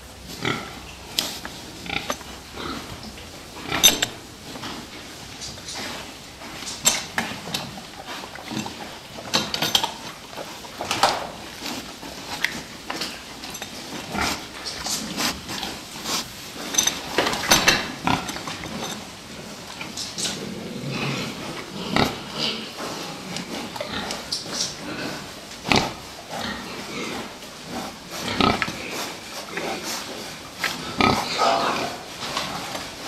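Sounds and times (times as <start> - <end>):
pigs grunting: 0.0 - 33.0
pig cries: 30.9 - 32.1.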